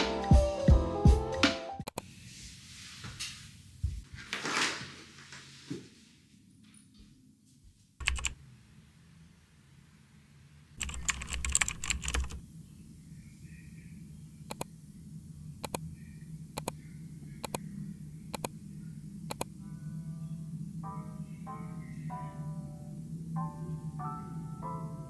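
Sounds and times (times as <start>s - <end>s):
faint low hum: 6.0s - 25.0s
keyboard typing clicks: 8.0s - 8.4s, 10.8s - 12.4s, 15.6s - 15.8s, 16.6s - 16.8s, 19.3s - 19.5s.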